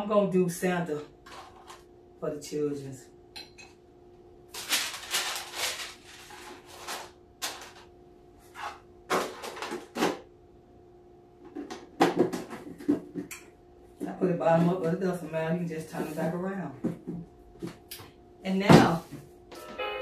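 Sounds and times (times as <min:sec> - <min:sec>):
faint steady hum: 0:00.0 - 0:20.0
cookie container rustling and clatter: 0:01.2 - 0:01.9, 0:04.5 - 0:10.2.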